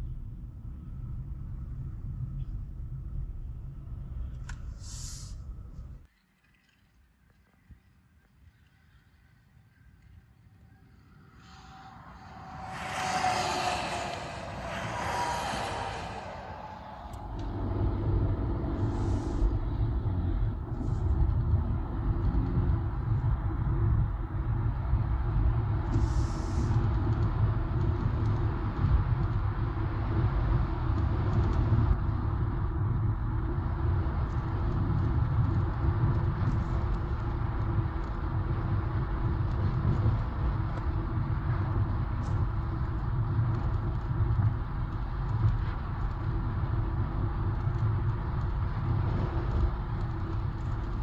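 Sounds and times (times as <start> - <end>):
car engine: 11.4 - 19.2.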